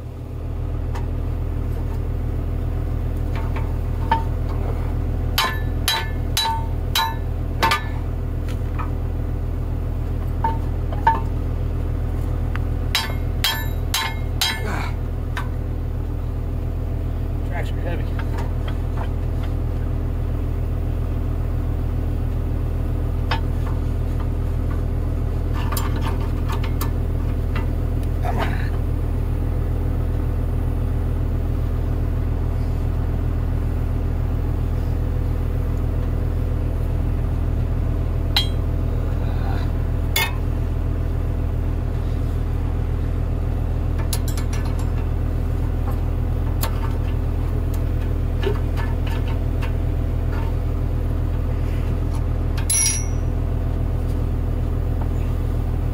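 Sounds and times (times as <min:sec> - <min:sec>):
engine idling: 0:00.0 - 0:55.9
metallic clinks and taps: 0:52.7 - 0:53.3.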